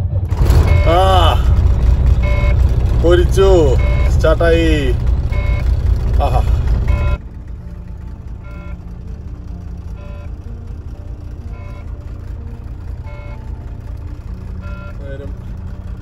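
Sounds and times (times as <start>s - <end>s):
diesel truck engine idling: 0.0s - 16.0s
warning beep: 0.6s - 1.3s, 2.2s - 2.6s, 3.6s - 4.3s, 5.3s - 5.7s, 6.9s - 7.2s, 14.6s - 15.1s.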